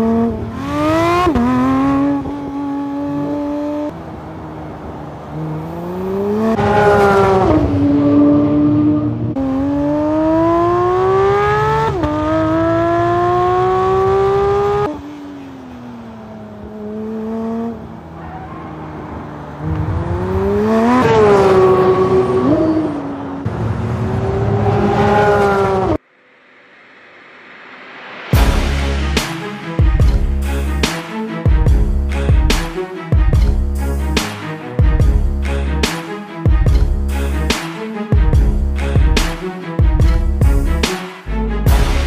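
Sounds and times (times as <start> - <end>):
sports car engine revving hard: 0.0 - 3.9, 5.3 - 15.0, 19.6 - 26.0
car passing at speed: 0.0 - 28.6.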